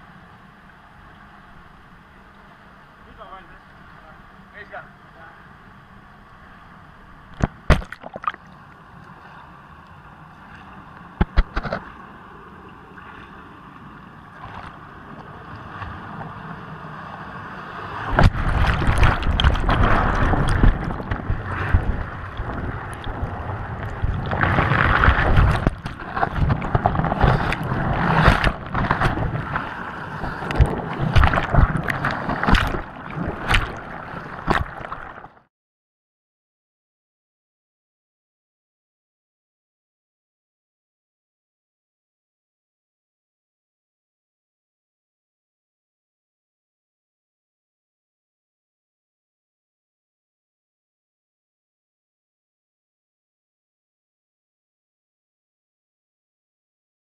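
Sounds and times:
water rushing and splashing: 5.9 - 35.5.

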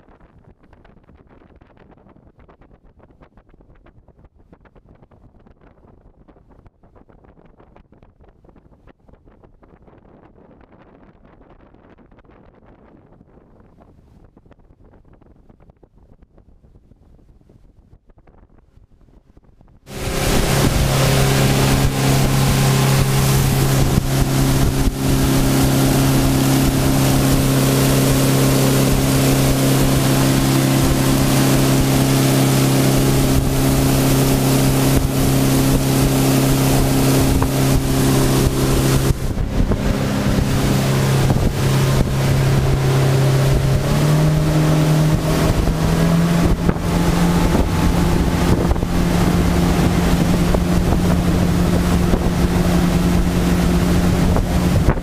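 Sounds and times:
outboard motor drone: 19.9 - 55.0
wake water rushing: 19.9 - 55.0
wind rushing: 19.9 - 55.0.

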